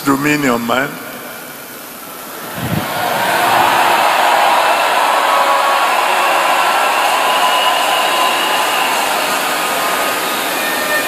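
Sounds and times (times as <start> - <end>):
crowd applauding and cheering: 2.3 - 11.0.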